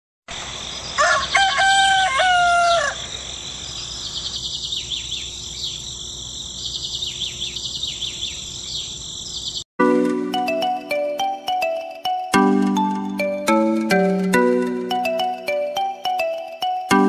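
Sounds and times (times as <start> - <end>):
rooster crowing: 1.0 - 3.2
small birds chirping: 2.5 - 9.7.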